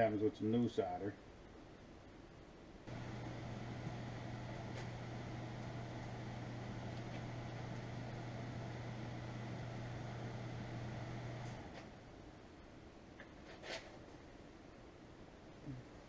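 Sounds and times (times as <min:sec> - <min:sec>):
soldering gun humming: 0:02.9 - 0:12.1.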